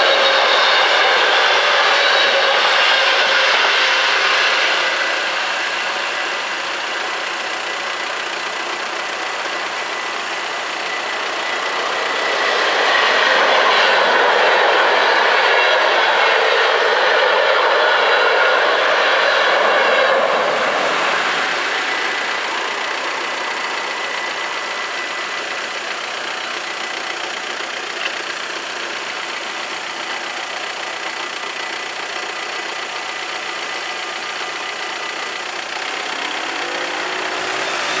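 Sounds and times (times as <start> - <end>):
car engine revving: 0.0 - 38.0
car engines idling: 0.0 - 38.0
passenger train rolling: 11.3 - 24.4.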